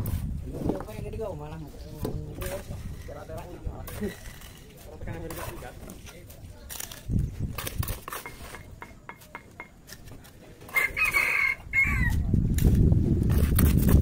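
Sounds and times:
rooster crowing: 10.7s - 12.2s.

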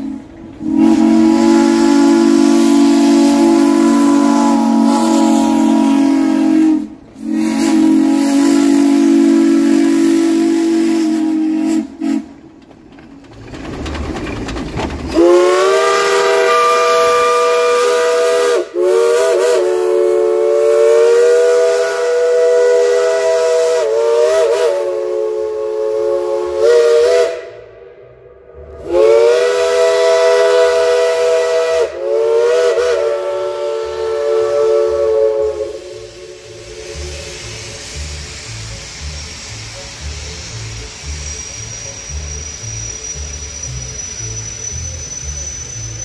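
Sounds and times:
steam locomotive whistle blasts: 0.0s - 12.5s, 15.1s - 46.0s
steam hiss: 0.0s - 14.4s, 15.0s - 27.8s, 28.6s - 46.0s.

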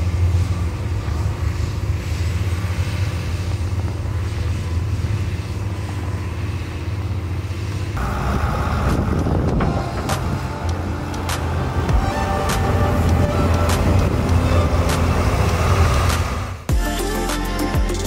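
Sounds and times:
diesel loader engine running: 0.0s - 18.0s.

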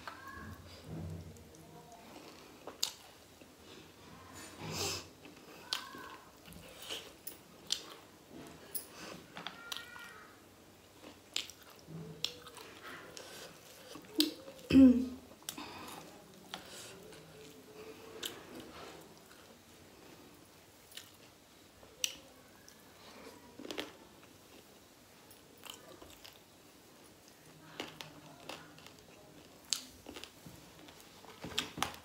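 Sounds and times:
person chewing food: 1.9s - 3.6s, 5.2s - 8.1s, 10.8s - 14.7s, 20.8s - 22.8s, 25.6s - 32.0s.

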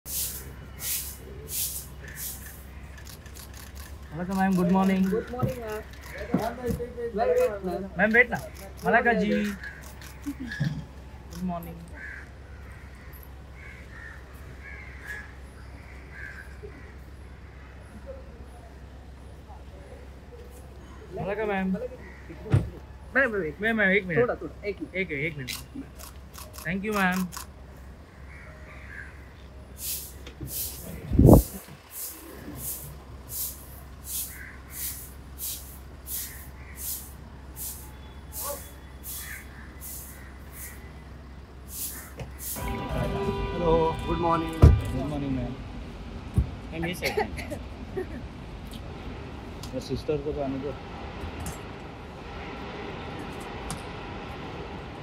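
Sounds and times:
bird harsh calls: 0.2s - 6.6s, 8.0s - 10.8s, 12.0s - 18.3s, 27.8s - 43.4s
car idling hum: 27.5s - 55.0s.

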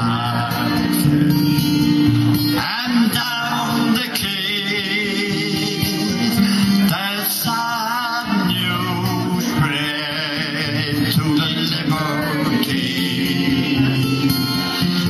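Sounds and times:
instrumental backing: 0.0s - 15.0s
man singing a ballad: 0.0s - 15.0s.

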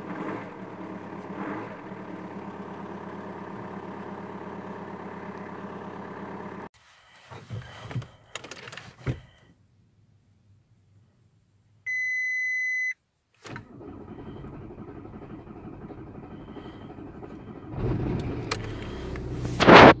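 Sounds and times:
diesel engine idling: 0.0s - 6.7s, 13.7s - 19.6s
starter motor churning: 0.0s - 6.7s, 13.5s - 19.6s.

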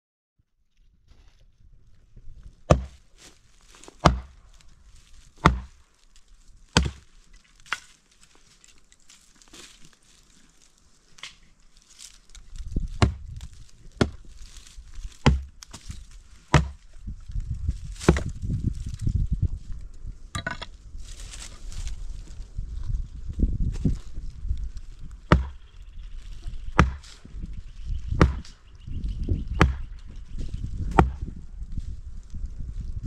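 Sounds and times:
wood chopping: 2.6s - 3.1s, 3.7s - 4.6s, 5.4s - 5.8s, 6.7s - 8.0s, 12.9s - 17.0s, 17.9s - 18.4s, 20.4s - 20.7s, 25.3s - 25.6s, 26.8s - 27.2s, 28.1s - 28.6s, 29.5s - 30.1s, 30.8s - 31.3s.

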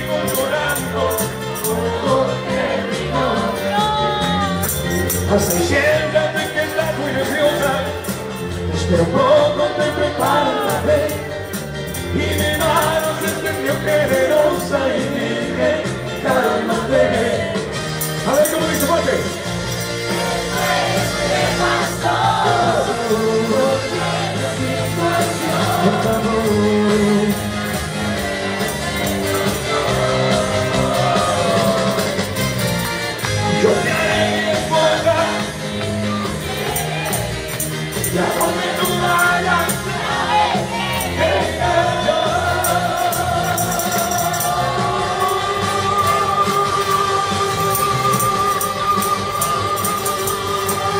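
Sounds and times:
man singing into microphone: 0.0s - 8.0s, 8.7s - 19.3s, 21.8s - 28.6s, 33.4s - 35.7s, 38.0s - 50.9s
backing track with bass: 0.0s - 50.9s.

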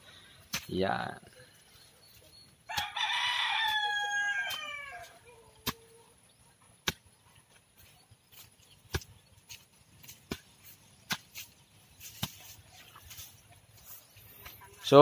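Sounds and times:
rooster crowing: 2.7s - 5.2s.

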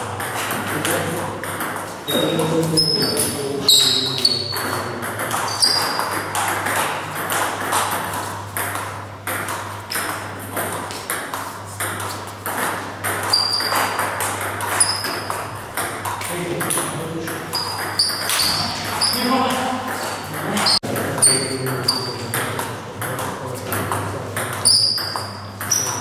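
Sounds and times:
ball bouncing on table: 0.2s - 26.0s
table tennis ball clicking off bats: 4.5s - 26.0s.

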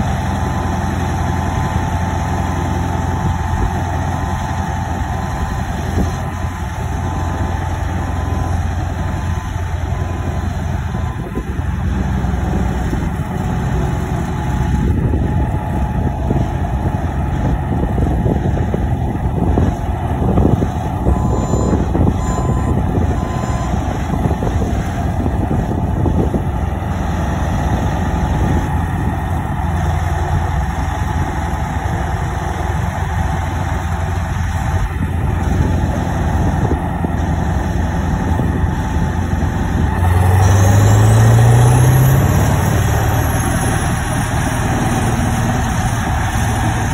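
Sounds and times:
engine rising in pitch: 0.0s - 26.4s, 37.5s - 46.9s
heavy diesel machinery running: 0.0s - 46.9s
backup alarm beeps: 3.2s - 11.5s, 21.0s - 24.0s.

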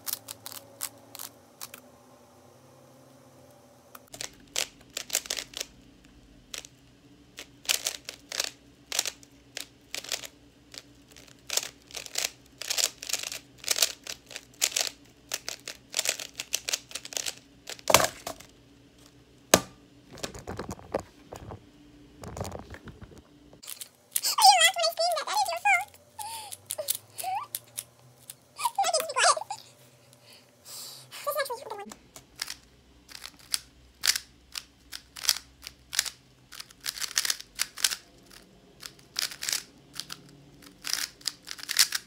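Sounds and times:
speed cube clicking: 0.0s - 1.8s, 4.0s - 5.8s, 6.5s - 17.9s, 32.2s - 42.0s.

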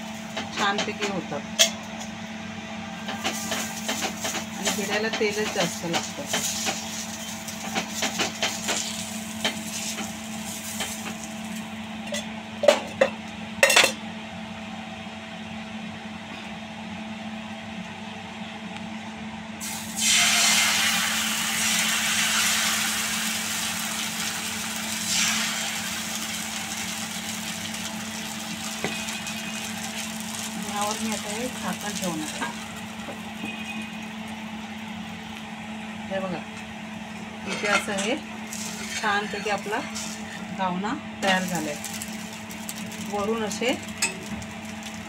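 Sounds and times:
oil sizzling on hot griddle: 3.2s - 11.8s, 19.6s - 35.4s, 38.4s - 40.4s, 41.2s - 45.0s
batter sizzling loudly: 5.6s - 11.7s, 19.6s - 35.3s, 38.4s - 40.4s, 41.2s - 45.0s
onion scraping on griddle: 6.1s - 11.6s, 38.4s - 40.5s.

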